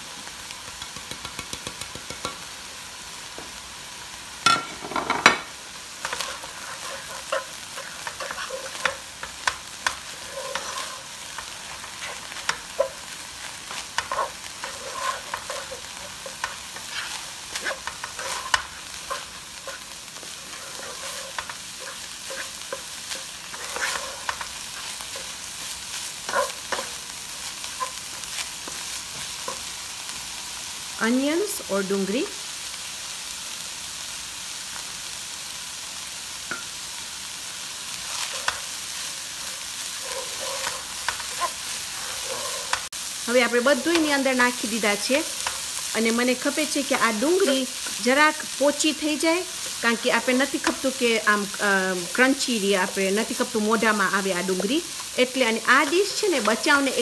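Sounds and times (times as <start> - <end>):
meat sizzling in a pot: 0.0 - 57.0
wooden spatula scraping and knocking: 4.6 - 27.1, 38.1 - 42.9, 55.4 - 57.0.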